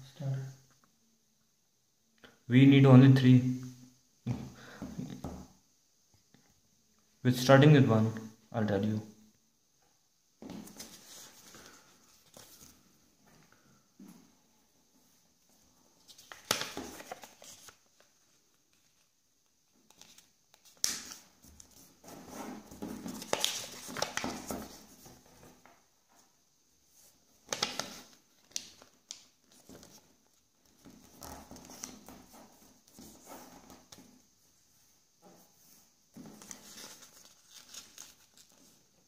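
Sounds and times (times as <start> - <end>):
paper rustling and crinkling: 10.5 - 12.8, 16.0 - 19.2, 19.8 - 25.7, 27.0 - 34.2, 35.7 - 39.0.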